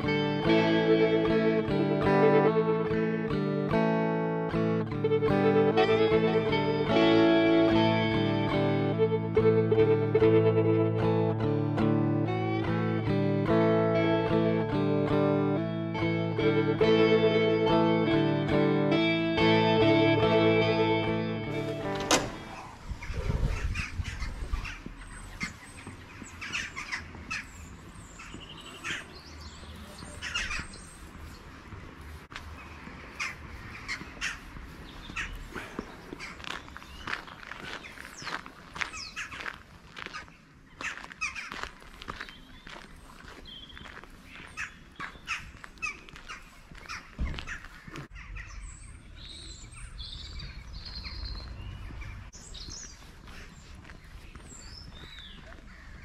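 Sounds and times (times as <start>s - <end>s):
small birds chirping: 22.4s - 39.5s, 40.1s - 56.0s.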